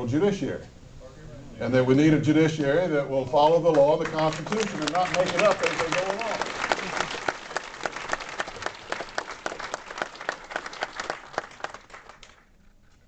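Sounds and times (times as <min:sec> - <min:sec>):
audience applauding: 0:03.7 - 0:12.6.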